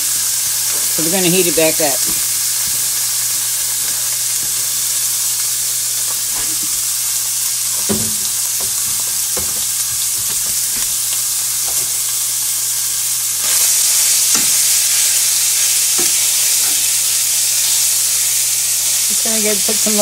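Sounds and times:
meat sizzling in a skillet: 0.0s - 20.0s
knocks and scrapes in pan: 7.7s - 11.0s.

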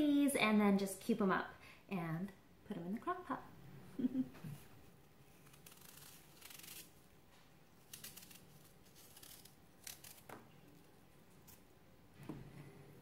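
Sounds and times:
knife scraping apple skin: 5.3s - 7.0s, 7.8s - 10.8s.

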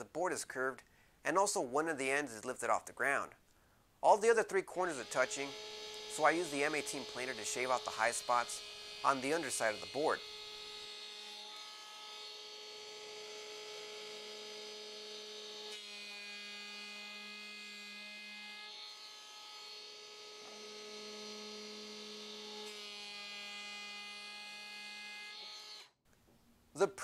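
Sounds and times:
electric hand planer whining: 4.7s - 26.0s.

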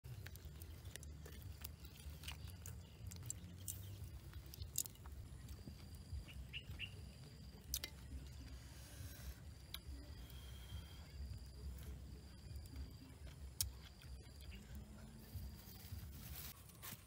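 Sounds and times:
sharp crackles and clicks: 0.0s - 8.6s, 11.2s - 14.8s
bird chirps: 1.8s - 7.6s, 9.8s - 15.1s.

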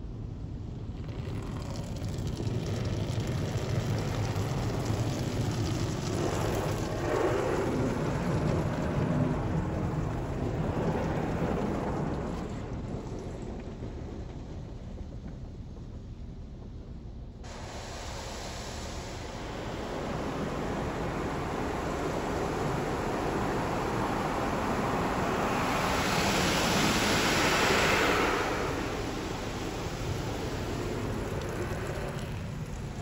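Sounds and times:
liquid drumming on car roof: 0.8s - 13.5s, 29.4s - 33.0s.

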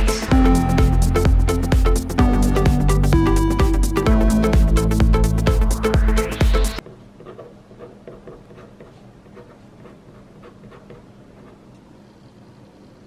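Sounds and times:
low room hum: 6.8s - 13.0s
pen scratching on paper: 7.2s - 11.7s.

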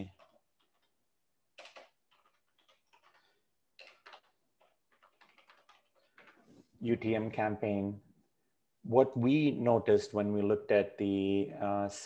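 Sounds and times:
keyboard typing: 0.0s - 6.7s.

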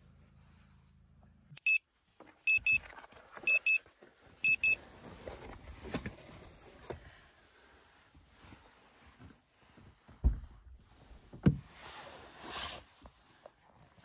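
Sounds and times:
electronic alarm beeping: 1.6s - 1.8s, 2.5s - 2.8s, 3.5s - 3.8s, 4.4s - 4.8s.

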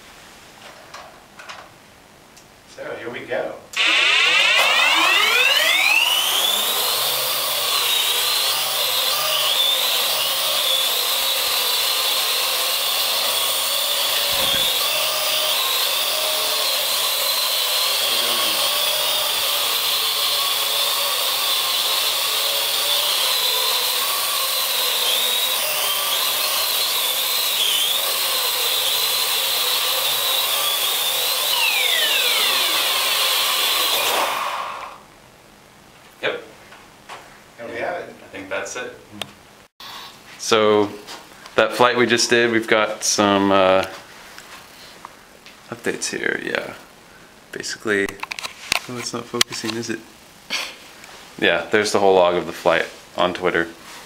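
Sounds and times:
drone rotors whining: 3.8s - 35.0s.

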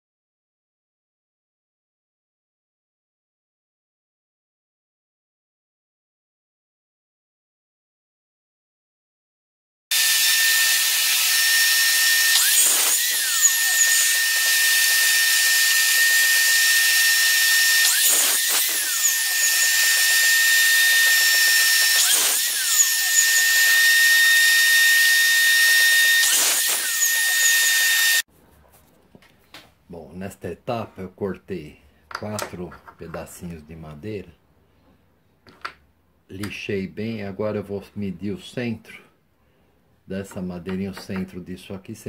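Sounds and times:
miter saw motor whine: 9.9s - 28.2s
saw cutting wood: 9.9s - 28.3s.

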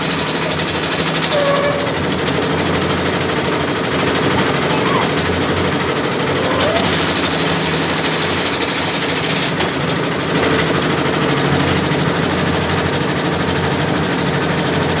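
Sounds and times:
concrete mixer engine running: 0.0s - 15.0s.

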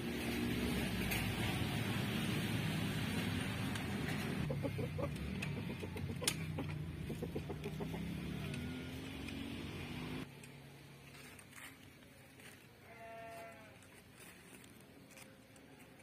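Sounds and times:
chickens clucking: 4.0s - 8.8s.

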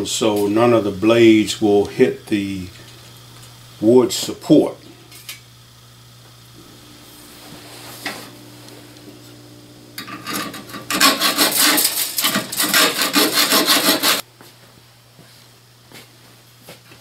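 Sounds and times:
hacksaw cutting metal: 10.0s - 14.2s.

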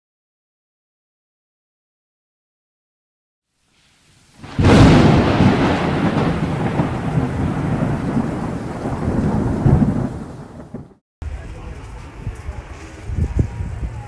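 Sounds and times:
thunderclap with rolling rumble: 4.4s - 11.0s.

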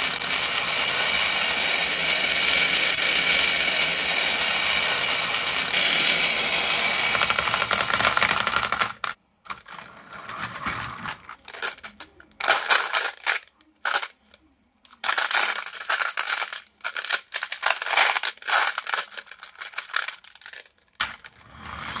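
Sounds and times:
marbles rattling down a track: 0.0s - 9.8s, 11.0s - 14.1s, 15.0s - 21.4s
marbles clinking in plastic truck: 0.0s - 9.9s, 10.9s - 14.2s, 15.0s - 21.4s.

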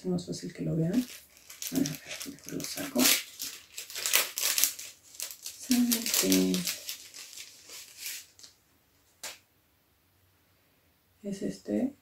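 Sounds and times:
plastic sleeve rustling: 0.8s - 8.6s.

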